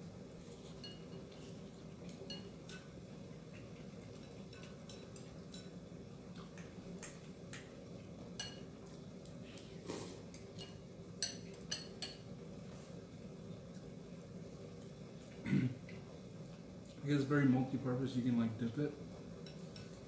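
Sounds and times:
low steady hum: 0.0 - 20.0
chopsticks and spoon clinking bowl: 0.5 - 7.7, 8.3 - 9.7, 10.3 - 12.3, 19.4 - 20.0.

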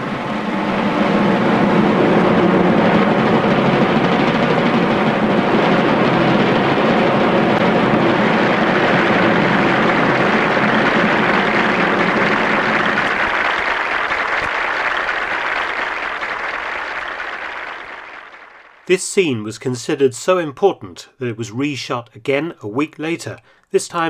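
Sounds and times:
steady rumbling: 0.0 - 19.4
crowd applauding: 7.5 - 18.9.

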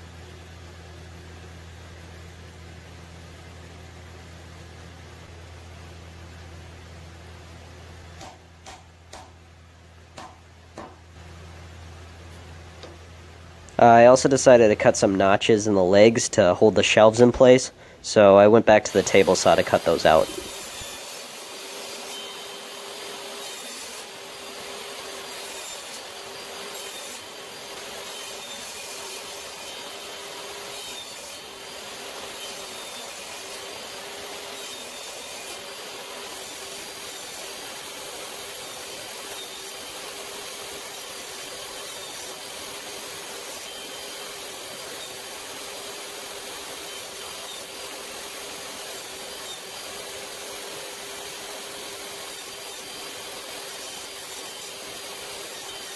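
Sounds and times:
saw whine: 13.9 - 55.9
table saw cutting wood: 18.2 - 55.9.

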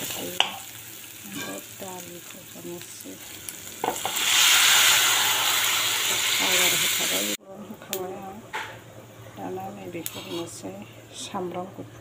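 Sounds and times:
onions frying in oil: 0.0 - 8.2
liquid hissing in hot oil: 3.0 - 7.4.

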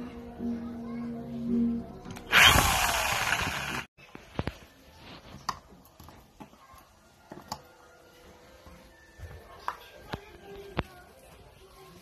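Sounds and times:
electric drill boring into wood: 2.3 - 3.9.

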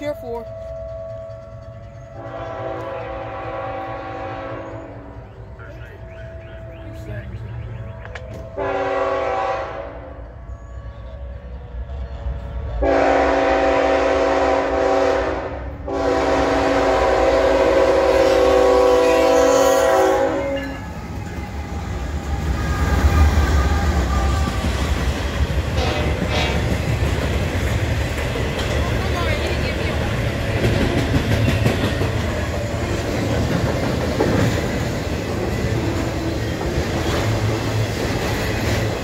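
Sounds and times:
diesel locomotives rumbling past: 0.0 - 39.0
locomotive air horn blasts: 2.2 - 5.1, 8.5 - 10.4, 12.8 - 20.8, 25.8 - 26.8.

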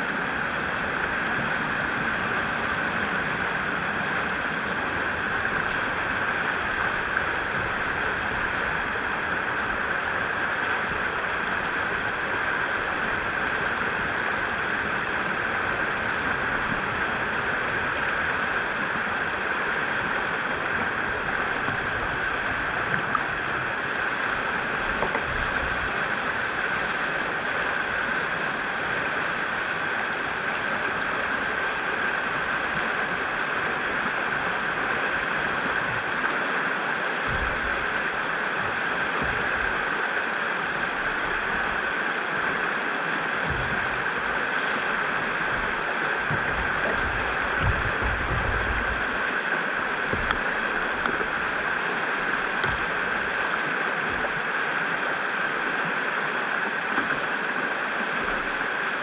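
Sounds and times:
river rushing through rapids: 0.0 - 59.0
low bumps: 45.4 - 49.2.

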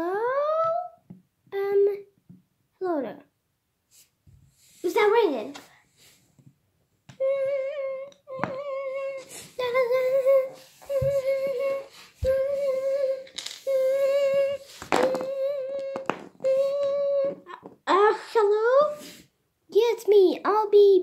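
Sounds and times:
child humming: 7.1 - 17.7.

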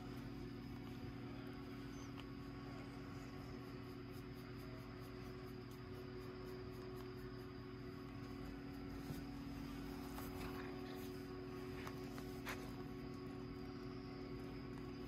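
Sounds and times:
low electrical hum: 0.0 - 15.0
faint scuffs and clicks: 8.3 - 13.2.

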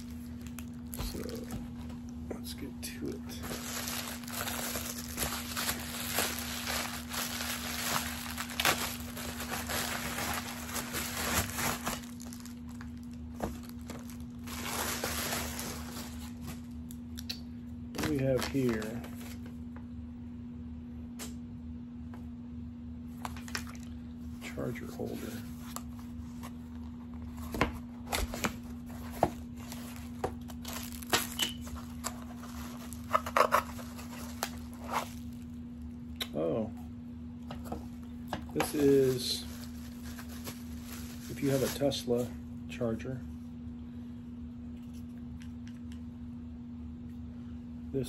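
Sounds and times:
steady low hum: 0.0 - 48.0
plastic mailer bag crinkling: 2.9 - 16.8, 18.0 - 19.5, 24.9 - 35.6, 37.9 - 42.4.

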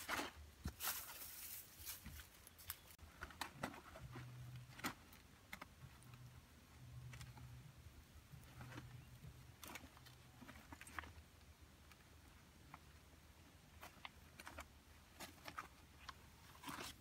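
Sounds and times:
dry leaves rustling and crackling: 0.0 - 3.0.

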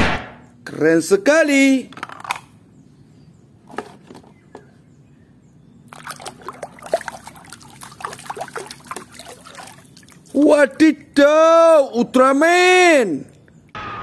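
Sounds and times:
hand stirring water in a basin: 5.9 - 10.8.

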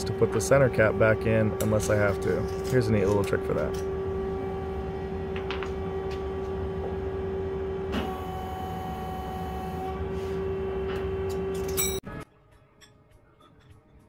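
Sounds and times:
higher machine tone: 0.0 - 12.2
machinery humming: 0.0 - 12.2.

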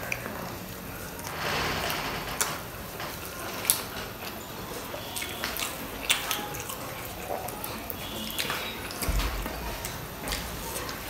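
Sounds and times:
wet chewing: 3.2 - 11.0
mouth clicks and smacks: 5.2 - 10.4.

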